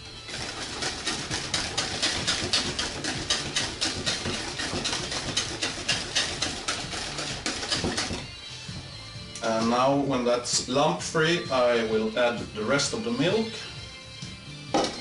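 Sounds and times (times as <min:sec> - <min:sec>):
whisk beating batter in bowl: 0:00.0 - 0:08.4.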